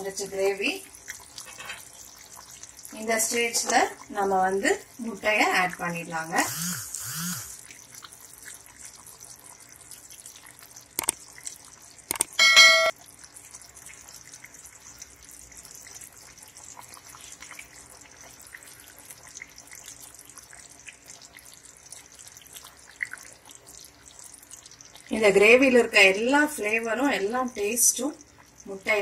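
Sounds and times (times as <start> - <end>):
gravy bubbling in a pan: 0.0 - 6.5, 7.5 - 29.0
metallic clink: 12.4 - 12.9.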